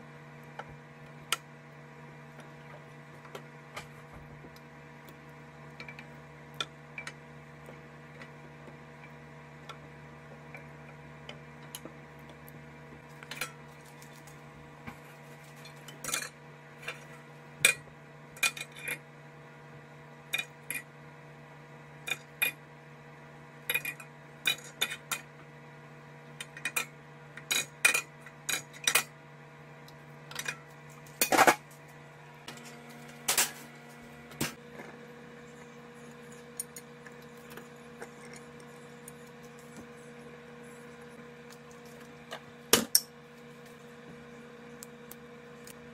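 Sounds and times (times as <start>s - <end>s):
steady hum: 0.0s - 45.9s
utensils clinking on dishes: 15.6s - 17.0s.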